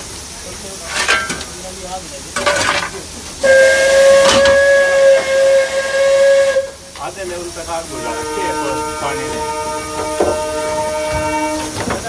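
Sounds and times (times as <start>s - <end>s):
coal shovel clatter: 0.7s - 4.7s
metal clank: 0.8s - 1.7s, 2.4s - 3.2s, 4.1s - 4.7s
steam whistle blast: 3.4s - 12.0s.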